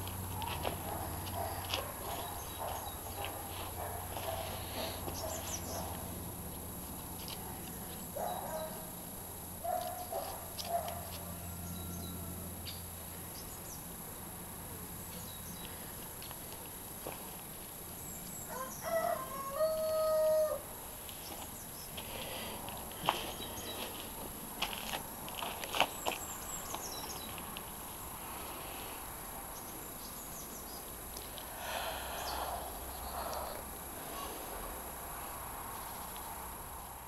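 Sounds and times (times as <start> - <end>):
light clicks and scuffling: 0.0 - 8.1, 21.0 - 27.8
rooster crowing: 11.2 - 12.6, 18.5 - 20.7.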